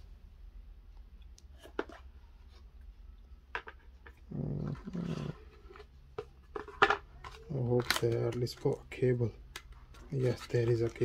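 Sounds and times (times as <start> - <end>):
short low vocal sound: 4.3 - 5.4.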